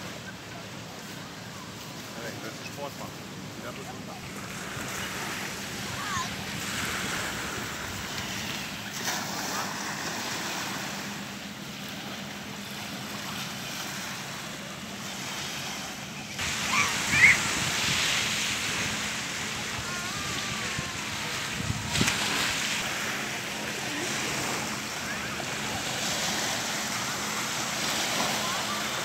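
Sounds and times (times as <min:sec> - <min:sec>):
faint distant voices: 0:00.0 - 0:29.0
lake water: 0:00.0 - 0:29.0
wind on microphone: 0:16.4 - 0:23.0.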